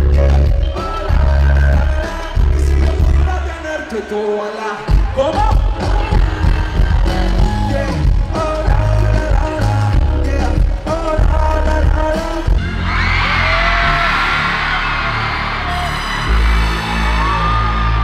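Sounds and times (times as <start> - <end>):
heavy bass beat: 0.0 - 3.8, 4.9 - 18.0
male singer: 0.0 - 14.3
crowd cheering and screaming: 0.3 - 8.6, 12.5 - 18.0.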